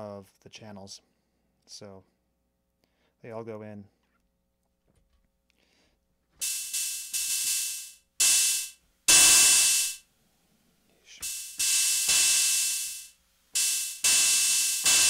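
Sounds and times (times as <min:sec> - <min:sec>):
distorted drum machine noise hits: 0:06.4 - 0:10.0, 0:11.2 - 0:15.0.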